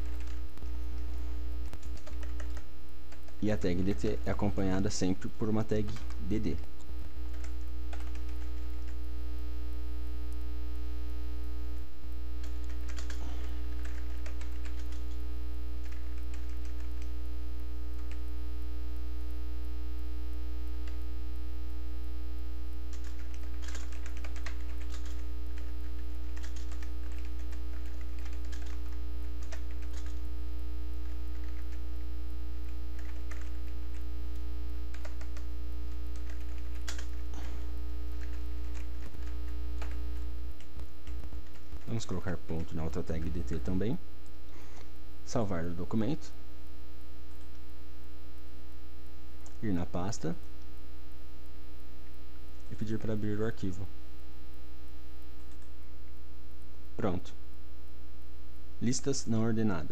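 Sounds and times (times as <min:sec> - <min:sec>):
typing on computer keyboard: 0:00.0 - 0:00.4, 0:01.8 - 0:03.4, 0:07.3 - 0:08.7, 0:12.4 - 0:13.2, 0:13.8 - 0:15.2, 0:15.8 - 0:17.1, 0:22.9 - 0:30.2, 0:31.0 - 0:31.8, 0:33.0 - 0:34.0, 0:34.9 - 0:35.5, 0:36.1 - 0:37.2, 0:38.2 - 0:40.0
electrical mains hum: 0:00.0 - 0:59.9.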